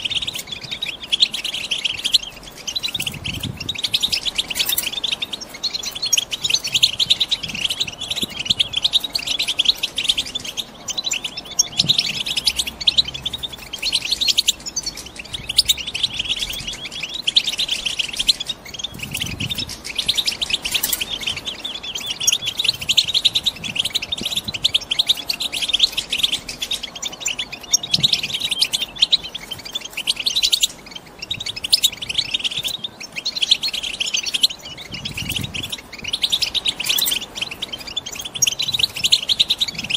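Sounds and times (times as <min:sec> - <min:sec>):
goldfinches twittering: 0:00.0 - 0:39.9.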